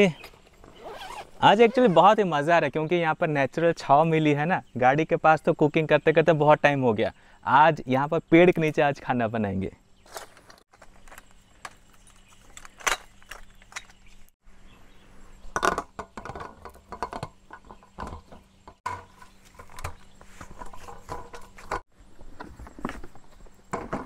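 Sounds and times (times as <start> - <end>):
aluminium table parts clattering: 15.6 - 21.8.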